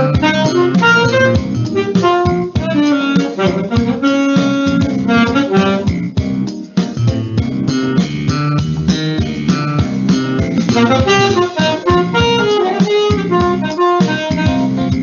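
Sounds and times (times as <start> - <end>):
saxophone playing jazz melody: 0.0 - 6.4, 10.4 - 15.0
backing track with steady beat: 0.0 - 15.0.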